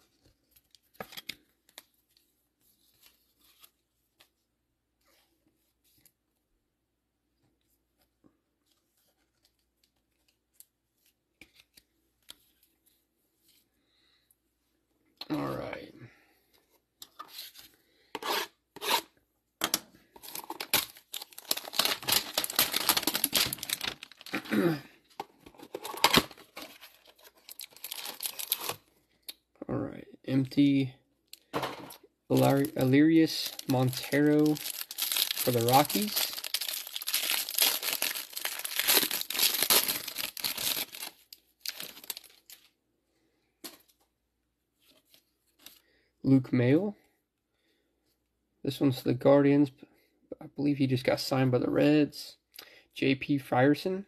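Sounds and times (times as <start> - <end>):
plastic wrapper crinkling and tearing: 20.2 - 24.8, 25.5 - 28.8, 31.9 - 42.7.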